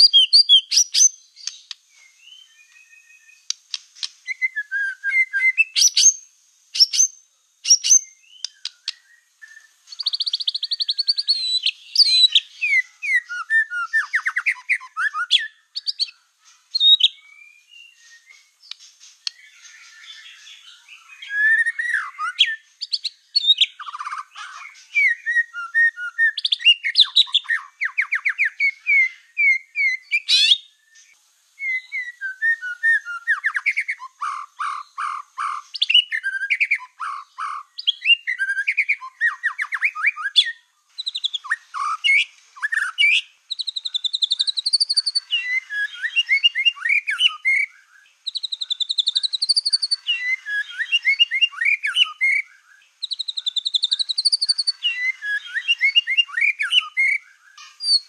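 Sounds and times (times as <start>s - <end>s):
bird singing whistles and trills: 0.0s - 58.0s.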